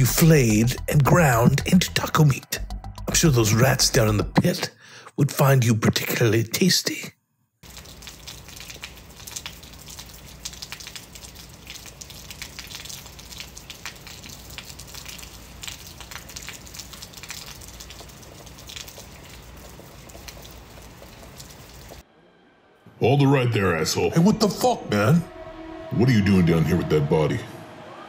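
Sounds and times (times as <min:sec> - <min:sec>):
rain drops pattering: 0:00.0 - 0:04.5, 0:07.6 - 0:22.0
low steady rumble: 0:23.7 - 0:28.0.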